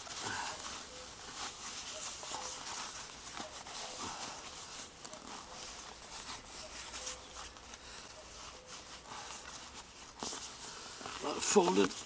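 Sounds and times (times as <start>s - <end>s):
rubber boot rustling and rubbing: 0.0s - 12.0s.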